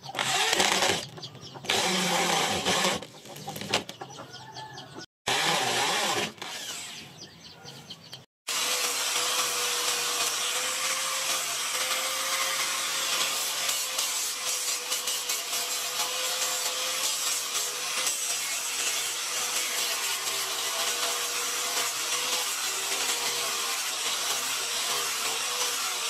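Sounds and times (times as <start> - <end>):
angle grinder sanding wood: 0.0 - 1.1, 1.7 - 3.7, 5.3 - 7.0, 8.5 - 26.0
electric drill driving screws: 0.1 - 3.8, 5.3 - 7.1, 8.5 - 26.0
chickens clucking: 1.0 - 1.7, 3.1 - 5.1.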